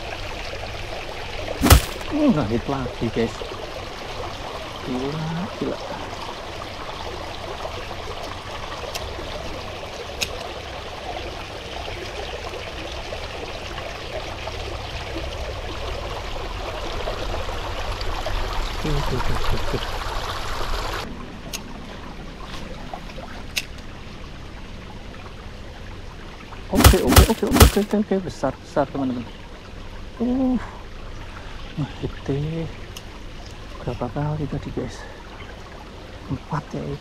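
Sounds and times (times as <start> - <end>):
stream water rushing: 0.0 - 28.1.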